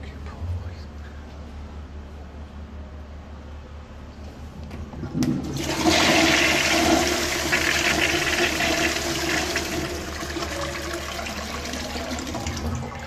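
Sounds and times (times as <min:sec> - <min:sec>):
toilet flushing: 0:05.1 - 0:13.0.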